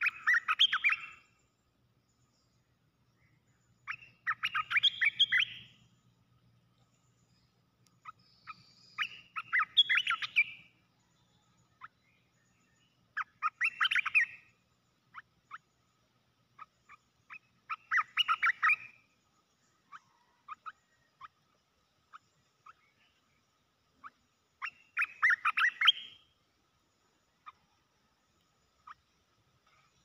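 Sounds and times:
bird call notes: 0.0s - 1.3s, 3.9s - 5.9s, 24.6s - 26.2s.

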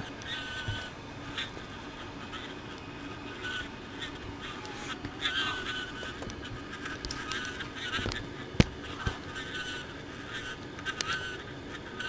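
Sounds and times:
small clicks and pops: 6.0s - 9.2s.

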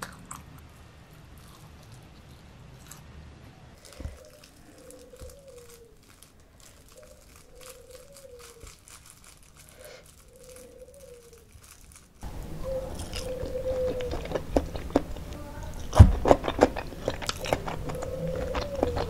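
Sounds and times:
close-up eating sounds: 0.0s - 19.0s
plastic bag crinkling: 3.8s - 19.0s.

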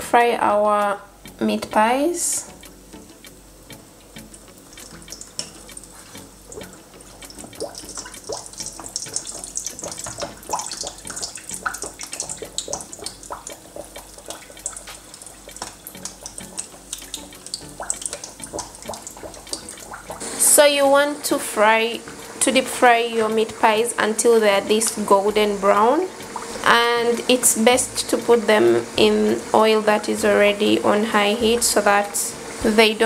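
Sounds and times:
pies deep-frying in oil: 0.9s - 33.0s
oil crackling and popping: 4.2s - 20.3s, 24.8s - 26.6s.

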